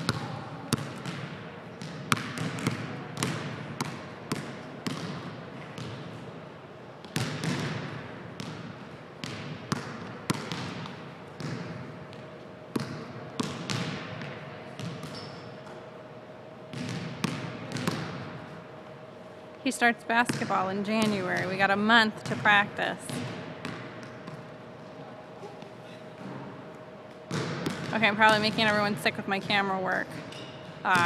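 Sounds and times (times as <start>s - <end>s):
basketball bouncing on wooden floor: 0.0s - 6.1s, 7.0s - 15.3s, 16.7s - 18.4s, 23.1s - 24.5s, 27.3s - 28.9s.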